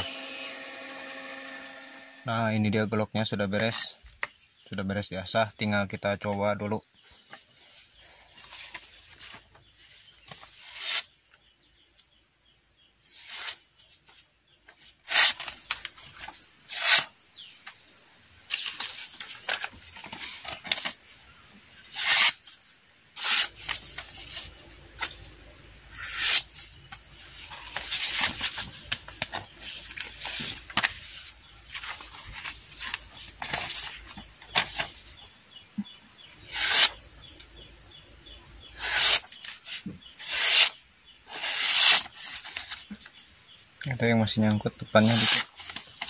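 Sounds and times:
machete blade strokes: 0.0s - 2.2s, 16.7s - 17.1s, 21.9s - 22.5s, 23.2s - 23.6s, 26.0s - 26.6s, 36.5s - 37.0s, 38.8s - 42.1s.

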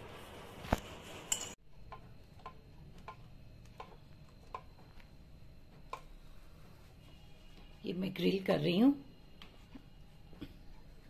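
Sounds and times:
kitchenware clink: 1.3s - 1.6s.

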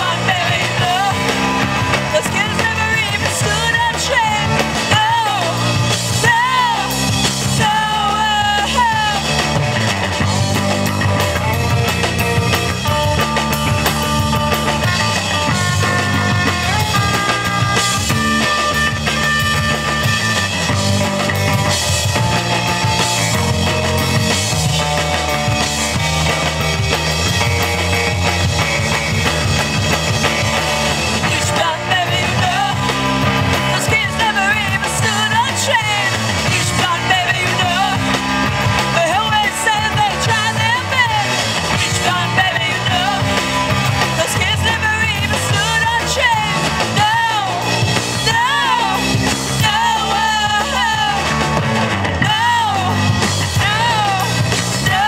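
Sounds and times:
woman singing: 0.0s - 9.4s, 31.2s - 38.2s, 38.9s - 51.3s, 52.2s - 55.0s
rock band playing loudly: 0.0s - 55.0s.

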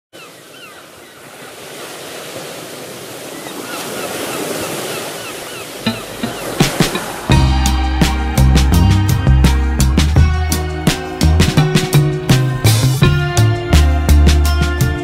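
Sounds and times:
sea waves washing: 0.2s - 14.2s
music: 5.8s - 15.0s.

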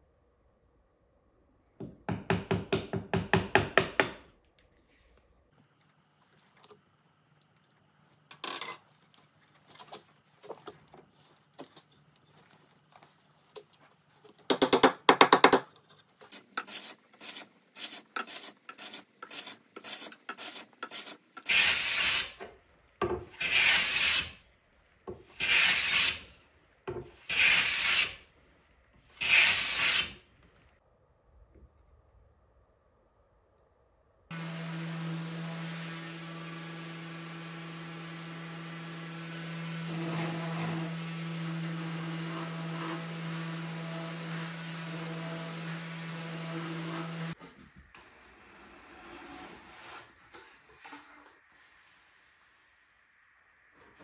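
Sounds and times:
chisel scraping wood: 15.7s - 22.5s
hand plane shaving wood: 23.4s - 24.4s, 25.3s - 26.3s.

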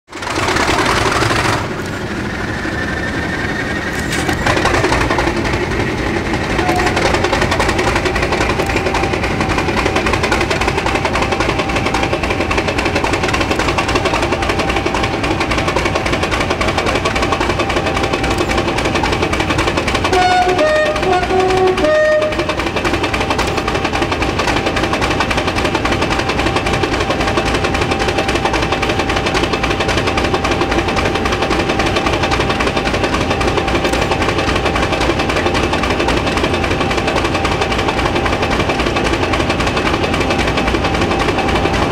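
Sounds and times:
diesel locomotive engine idling: 0.1s - 41.9s
locomotive horn two-tone notes: 6.6s - 7.2s, 20.1s - 22.6s.

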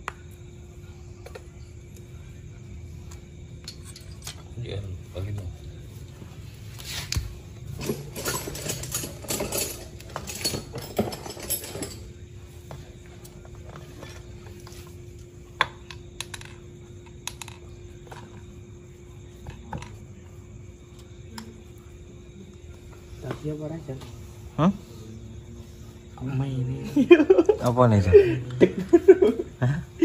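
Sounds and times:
metal tools clinking: 3.6s - 4.6s, 7.7s - 12.2s.

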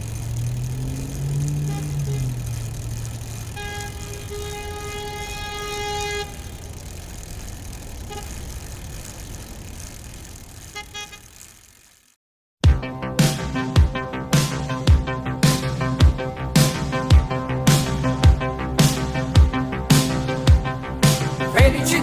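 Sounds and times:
road traffic noise: 0.0s - 12.2s, 13.5s - 22.0s
vehicle horn held: 3.4s - 6.6s, 10.7s - 11.4s.

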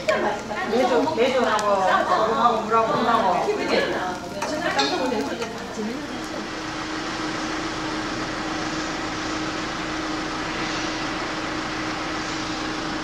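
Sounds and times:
constant low hum: 5.5s - 13.0s.

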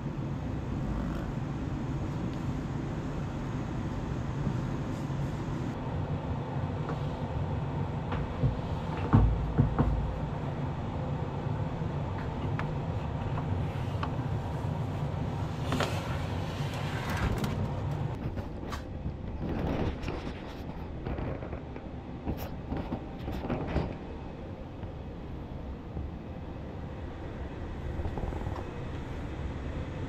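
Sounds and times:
steady low hum: 0.0s - 30.0s
knock: 8.4s - 10.1s.

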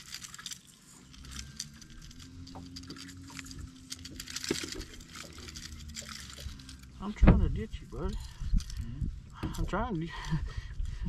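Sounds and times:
pliers and hooks clicking: 0.0s - 7.0s.

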